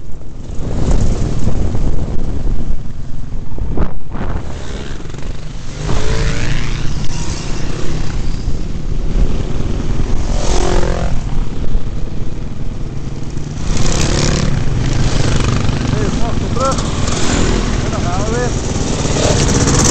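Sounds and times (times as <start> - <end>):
dirt bike engines revving: 4.0 - 19.9.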